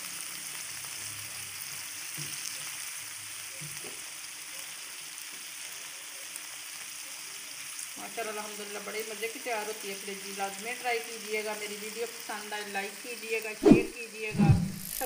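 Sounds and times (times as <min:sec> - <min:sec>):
liver sizzling in oil: 0:00.0 - 0:15.0.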